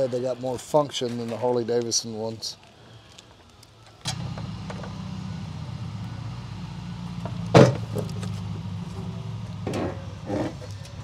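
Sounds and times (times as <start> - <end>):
low machine hum: 4.0 - 11.0.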